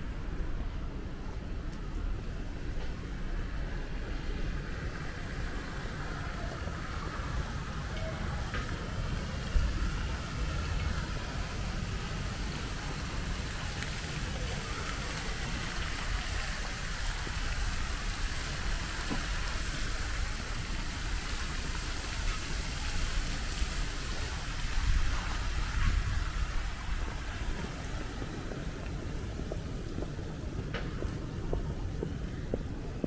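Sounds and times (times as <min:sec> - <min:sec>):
fountain water splashing: 0:00.2 - 0:33.0.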